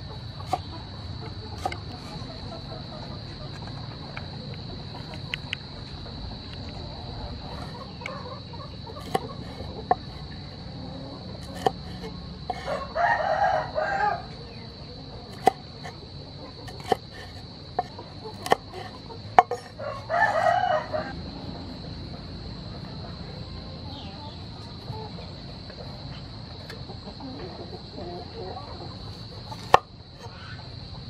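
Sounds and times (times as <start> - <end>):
knife striking cutting board: 9.0 - 9.3, 11.4 - 11.8, 15.3 - 15.6, 16.7 - 19.7
rooster crowing: 10.9 - 14.6, 18.4 - 21.6.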